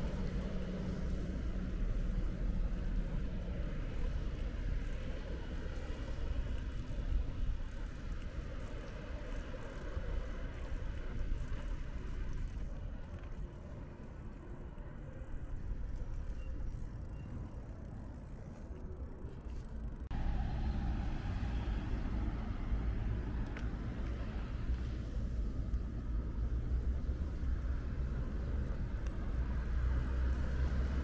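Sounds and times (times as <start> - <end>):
low rumble of passing cars: 0.0 - 31.0.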